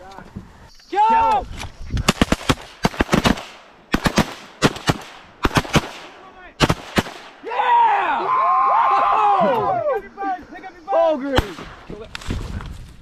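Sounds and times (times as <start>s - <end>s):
shotguns firing: 2.0s - 7.4s, 11.4s - 12.0s.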